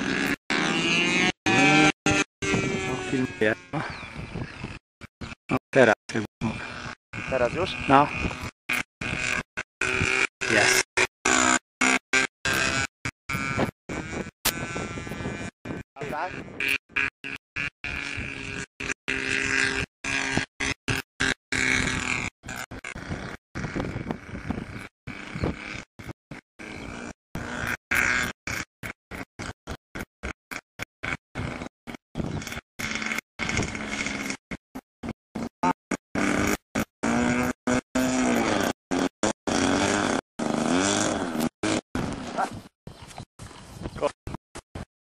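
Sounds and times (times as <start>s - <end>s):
model aircraft engine droning: 0.0s - 44.7s.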